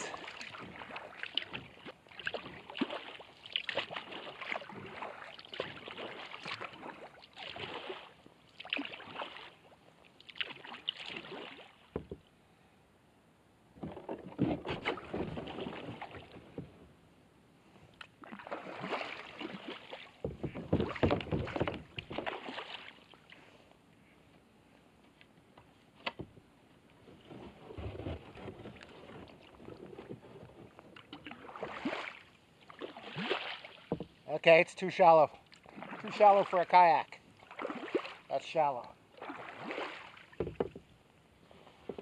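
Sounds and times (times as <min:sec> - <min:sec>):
water dripping from paddle: 0:00.0 - 0:07.9
kayak paddle splashing in water: 0:00.0 - 0:12.1, 0:13.9 - 0:16.6, 0:18.0 - 0:23.3, 0:31.0 - 0:34.2, 0:35.5 - 0:40.9.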